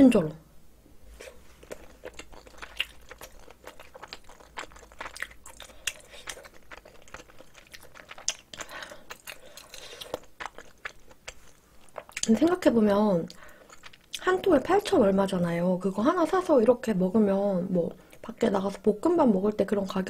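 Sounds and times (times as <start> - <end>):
close chewing mouth clicks: 1.6 - 12.4, 13.3 - 14.3.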